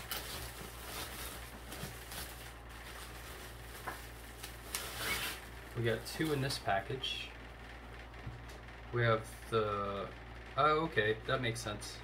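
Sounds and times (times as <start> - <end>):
bubble wrap crinkling: 0.0 - 6.6.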